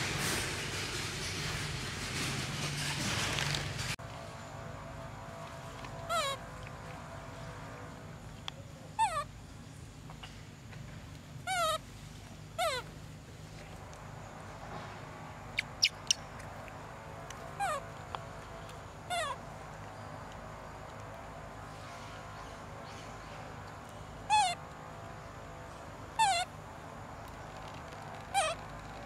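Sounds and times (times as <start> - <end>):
young monkey squealing: 6.1 - 6.4, 9.0 - 9.3, 11.5 - 11.8, 12.6 - 12.9, 15.6 - 16.3, 17.6 - 17.8, 19.1 - 19.4, 24.3 - 24.6, 26.2 - 26.5, 28.2 - 28.7.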